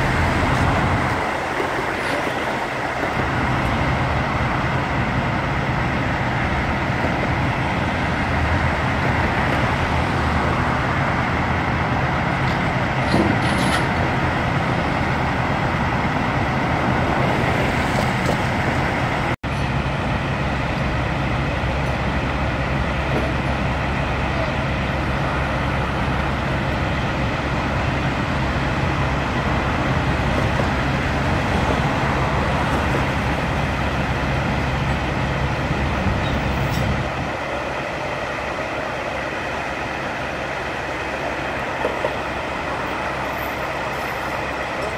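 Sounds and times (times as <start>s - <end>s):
highway traffic rumble: 0.0s - 44.9s.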